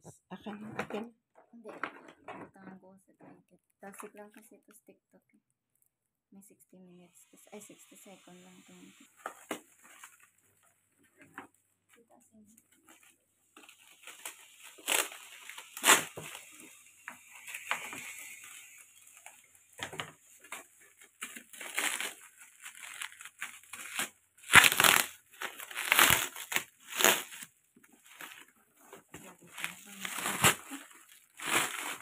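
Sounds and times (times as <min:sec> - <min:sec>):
plastic wrap crinkling: 0:09.0 - 0:32.0.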